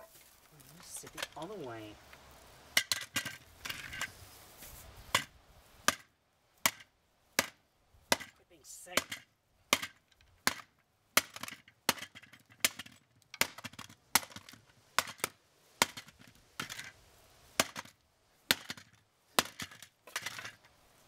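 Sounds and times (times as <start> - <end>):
golf club smashing plastic housing: 17.6 - 20.6.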